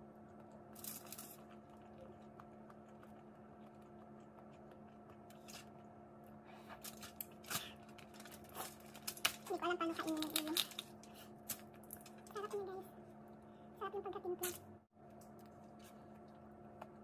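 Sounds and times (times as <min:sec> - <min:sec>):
faint steady hum: 0:00.0 - 0:17.0
crawfish shells cracking: 0:06.8 - 0:12.5.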